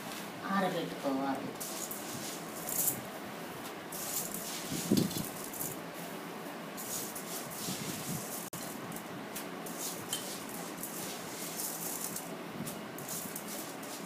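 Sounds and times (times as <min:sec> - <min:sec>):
grains rattling in steel bowl: 0:01.6 - 0:03.0, 0:03.9 - 0:05.8, 0:09.6 - 0:12.3, 0:13.0 - 0:14.0
grains rustling on cloth: 0:01.6 - 0:03.0, 0:03.9 - 0:05.8, 0:06.8 - 0:08.5, 0:09.7 - 0:12.3.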